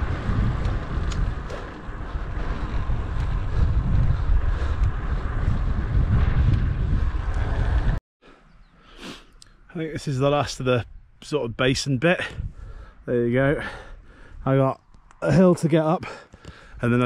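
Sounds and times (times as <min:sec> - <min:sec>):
wind buffeting a microphone: 0:00.0 - 0:08.0, 0:12.2 - 0:13.0.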